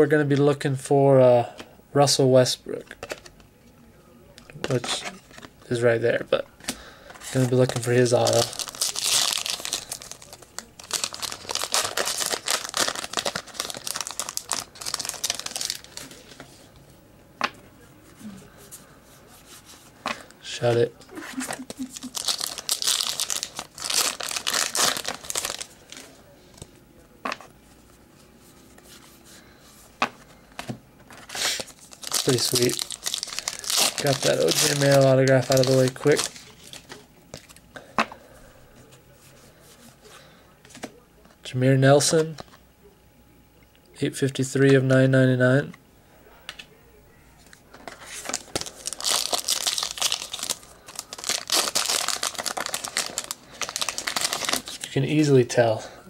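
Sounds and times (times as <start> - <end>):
wrapper crinkling and tearing: 7.3 - 16.4, 21.3 - 26.2, 31.1 - 37.6, 47.8 - 55.3.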